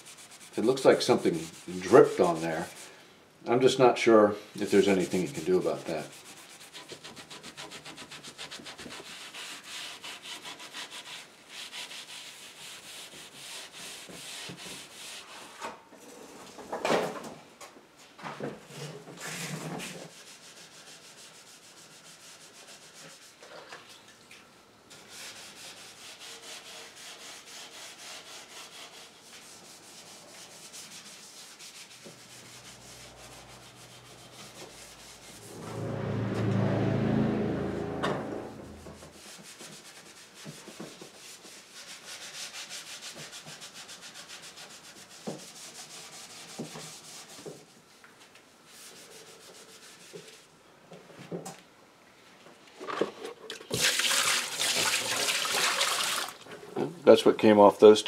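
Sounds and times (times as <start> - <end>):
rag scrubbing wooden chair: 0.0 - 2.9, 4.6 - 15.5, 24.9 - 35.6
low rumble: 35.0 - 39.1.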